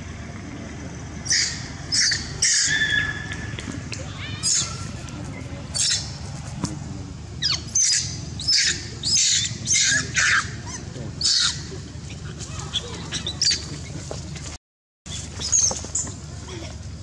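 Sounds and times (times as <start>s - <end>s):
monkey screaming shrilly: 1.2s - 3.6s, 4.2s - 5.0s, 5.8s - 6.2s, 7.4s - 11.7s, 12.5s - 13.6s.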